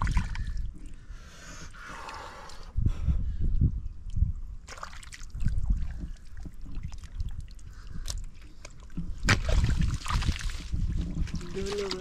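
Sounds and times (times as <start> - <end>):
mud and water squelching: 4.6 - 12.0.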